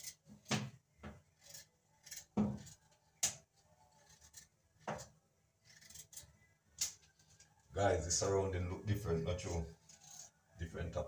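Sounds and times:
knife scraping a potato: 0:00.0 - 0:00.2, 0:01.3 - 0:07.6, 0:09.4 - 0:10.6.

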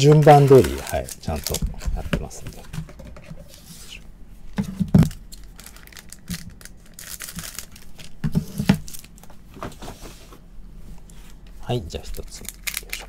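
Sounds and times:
card pack wrapper crinkling: 0:00.0 - 0:02.7, 0:05.0 - 0:09.3, 0:12.0 - 0:13.0.

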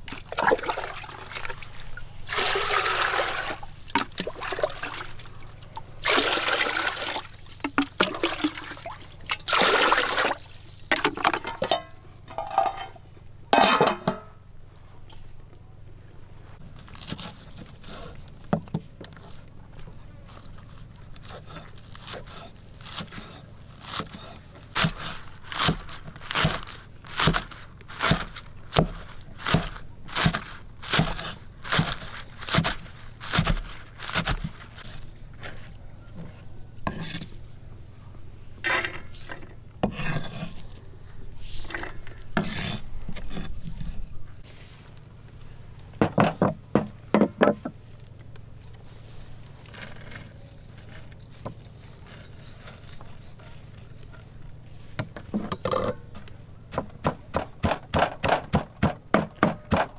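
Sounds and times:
utensil scraping: 0:21.2 - 0:37.4, 0:38.6 - 0:44.9, 0:49.0 - 0:54.9.

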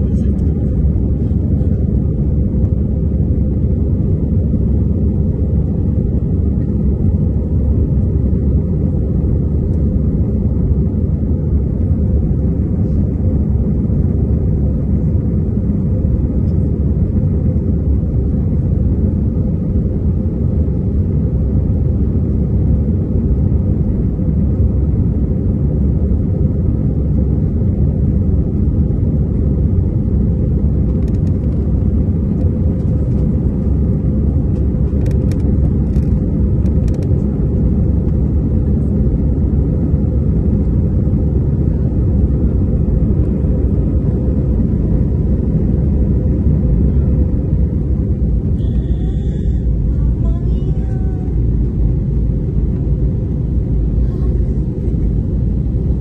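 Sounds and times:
airplane cabin rumble: 0:00.0 - 0:56.0.

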